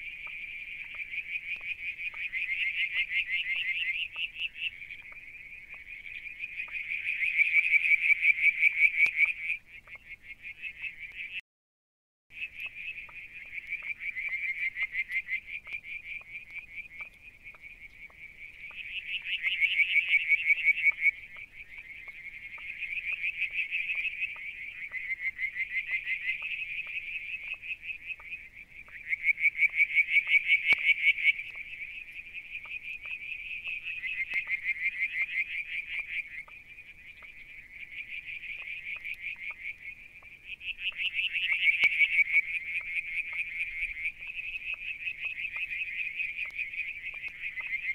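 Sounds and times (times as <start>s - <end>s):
faint soft ticks: 15.0s - 18.8s, 46.4s - 47.4s.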